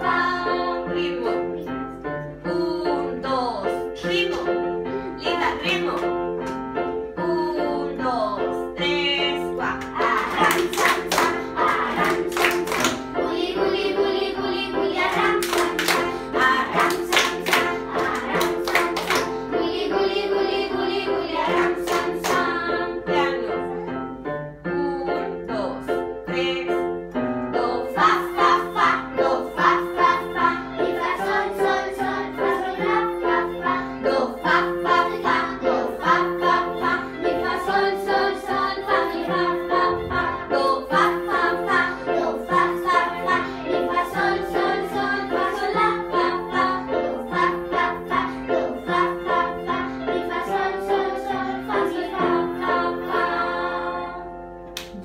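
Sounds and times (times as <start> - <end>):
children singing: 0.0 - 1.6, 9.3 - 24.0, 27.6 - 54.6.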